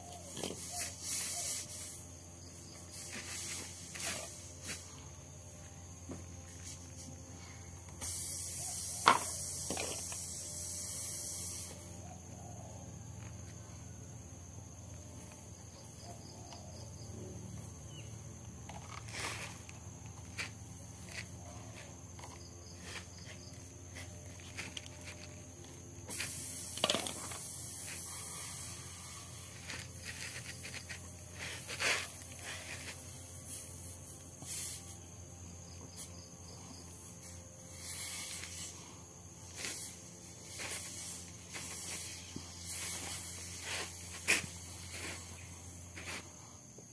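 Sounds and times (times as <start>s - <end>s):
high air hiss: 0.0s - 12.8s, 22.7s - 46.9s
tool clicks and scrapes on tyre: 7.9s - 10.4s, 18.6s - 28.1s, 29.5s - 33.1s, 39.5s - 46.3s.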